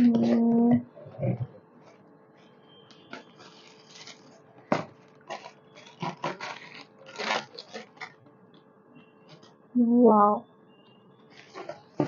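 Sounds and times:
wrapping paper rustling: 3.1s - 4.4s, 5.0s - 8.2s.

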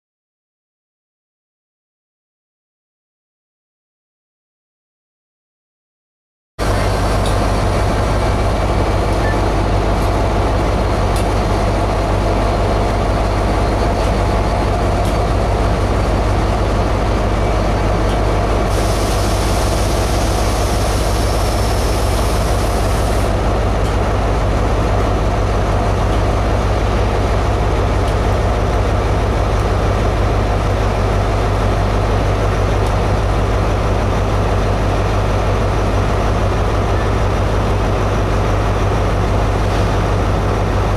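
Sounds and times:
diesel locomotive engine running: 6.6s - 40.9s
air hissing: 18.7s - 23.3s.

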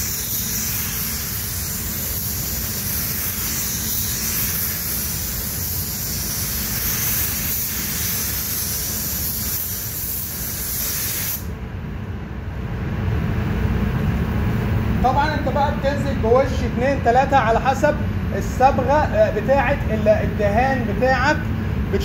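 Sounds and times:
air spray gun hissing: 0.0s - 11.5s
steady low rumble: 11.5s - 22.0s.

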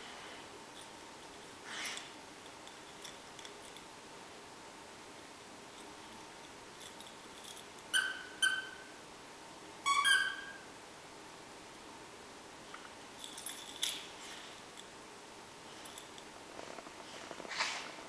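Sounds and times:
squeaky dog toy squeaks: 7.9s - 8.9s, 9.8s - 10.6s.

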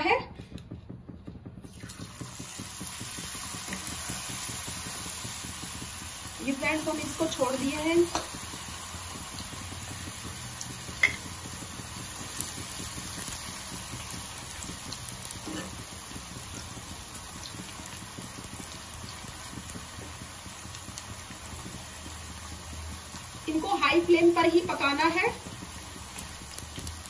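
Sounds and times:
fries sizzling in hot oil: 1.5s - 27.0s.

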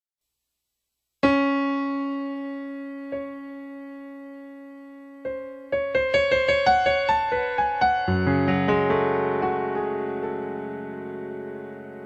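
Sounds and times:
piano chord ringing: 1.2s - 12.0s.

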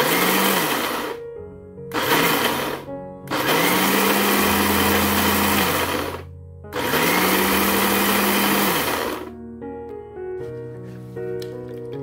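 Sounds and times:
blender motor grinding rice: 0.0s - 1.2s, 1.9s - 9.3s.

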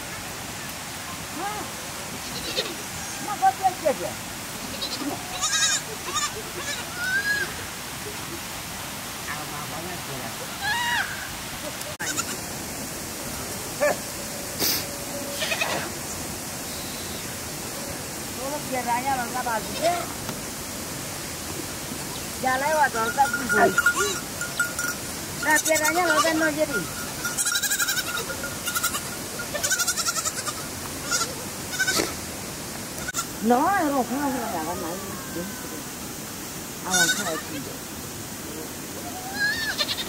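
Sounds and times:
steady background hiss: 0.0s - 40.0s
goats bleating: 2.2s - 3.3s, 4.6s - 7.5s, 12.0s - 12.4s, 15.3s - 15.9s, 23.1s - 24.2s, 25.4s - 32.2s, 36.9s - 37.5s, 39.2s - 40.0s
sharp hiss: 10.8s - 34.0s.

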